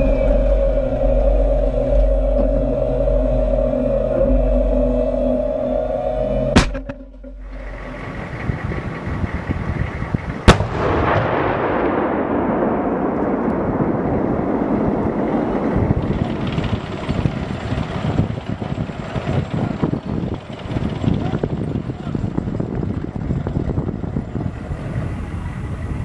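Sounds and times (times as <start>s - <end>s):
tank engine running: 0.0s - 26.0s
tank gun firing with echo: 10.4s - 16.4s.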